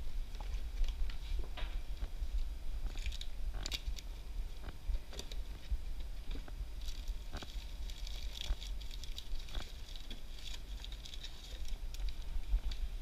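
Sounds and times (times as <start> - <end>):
plastic snack packets crinkling: 2.9 - 4.2, 6.4 - 12.8.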